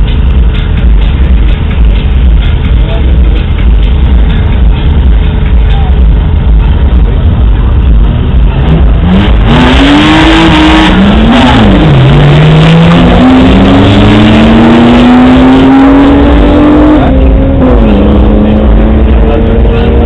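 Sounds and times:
car engines revving: 0:00.0 - 0:20.0.

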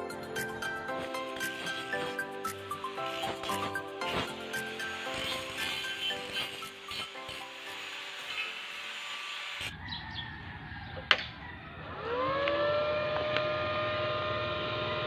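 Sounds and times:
background music: 0:00.0 - 0:08.3
welding machine whine: 0:00.0 - 0:09.7.

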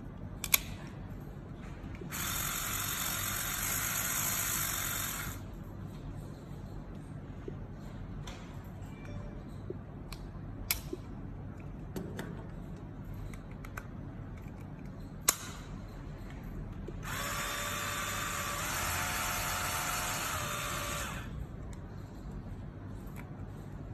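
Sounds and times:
epilator motor buzzing: 0:02.1 - 0:05.4, 0:17.0 - 0:21.4.

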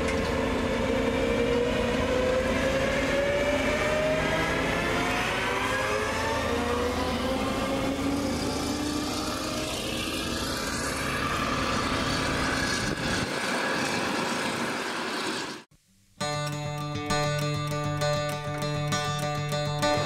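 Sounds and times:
combine harvester running: 0:00.0 - 0:15.6
acoustic guitar music: 0:15.8 - 0:20.0.

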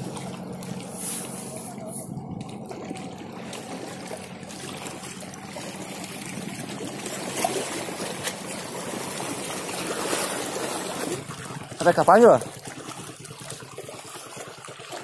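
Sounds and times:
boat engine humming: 0:00.0 - 0:15.0
water lapping among rocks: 0:00.0 - 0:15.0.

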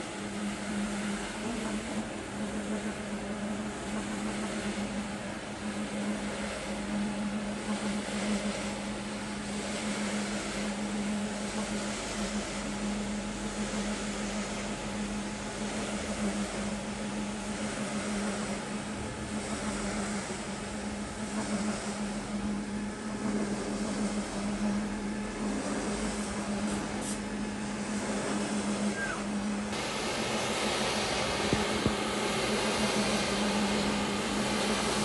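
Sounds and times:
carpet cleaner motor hum: 0:00.0 - 0:35.0
brushes scrubbing wet rug: 0:25.4 - 0:27.2.

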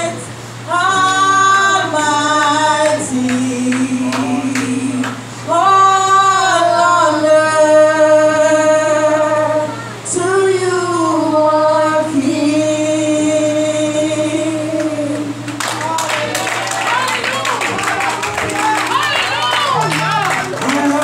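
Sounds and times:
steady low hum: 0:00.0 - 0:15.9
gospel worship singing: 0:00.0 - 0:21.0.

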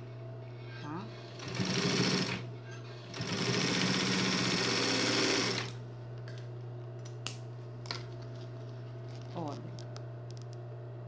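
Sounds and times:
sewing machine motor humming: 0:01.1 - 0:05.8
sewing machine stitching: 0:01.2 - 0:02.4, 0:03.0 - 0:05.7.

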